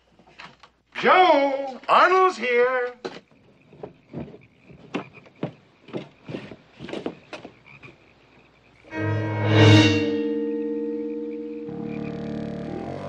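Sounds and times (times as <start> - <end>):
frogs croaking: 1.2 - 9.2, 10.3 - 13.0
faint high trill: 8.9 - 13.0
music chord with deep bass: 8.9 - 13.0.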